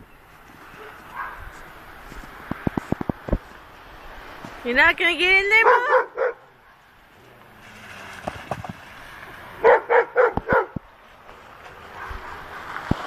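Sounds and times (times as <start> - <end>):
dog barking: 0.8 - 1.4, 5.6 - 6.4, 9.6 - 10.8, 12.0 - 12.6.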